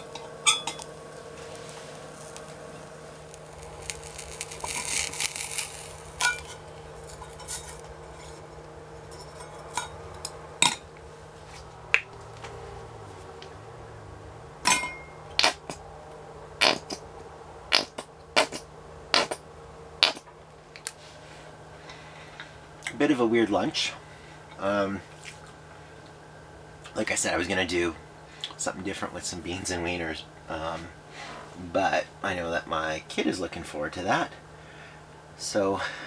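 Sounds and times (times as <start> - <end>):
steady low hum: 0.0 - 36.0
stove hiss: 0.7 - 8.8
squeeze bottle sputtering: 3.3 - 6.3.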